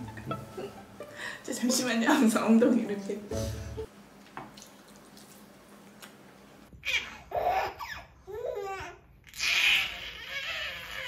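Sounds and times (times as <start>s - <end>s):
baby laughing and squealing: 6.8s - 11.0s.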